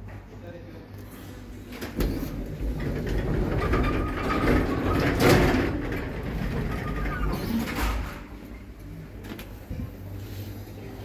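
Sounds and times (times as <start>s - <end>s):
lift running mechanical noise: 1.2s - 11.0s.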